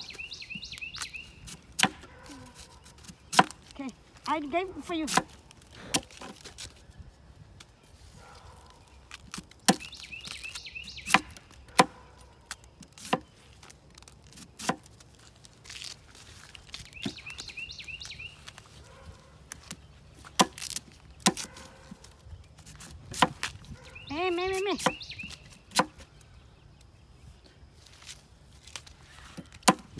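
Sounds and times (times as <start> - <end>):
knife chopping bamboo on wood: 1.4 - 3.7, 5.0 - 6.4, 9.2 - 10.4, 11.0 - 13.3, 14.3 - 15.0, 19.6 - 21.7, 22.7 - 23.6, 24.7 - 25.1, 25.7 - 26.0, 29.3 - 29.9.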